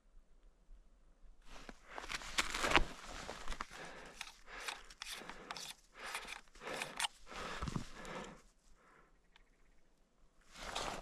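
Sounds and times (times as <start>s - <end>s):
footsteps crunching in snow: 1.5s - 4.0s.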